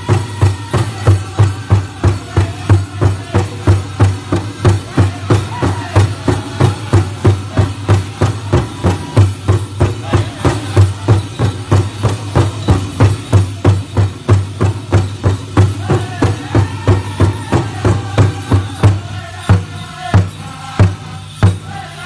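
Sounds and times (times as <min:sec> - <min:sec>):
group singing: 0:00.0 - 0:13.3, 0:14.6 - 0:22.0
big drum beating: 0:00.0 - 0:21.8.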